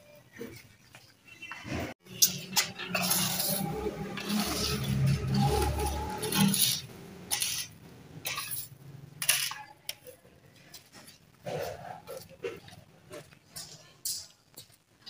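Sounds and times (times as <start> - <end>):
broom sweeping stone floor: 2.8 - 8.7.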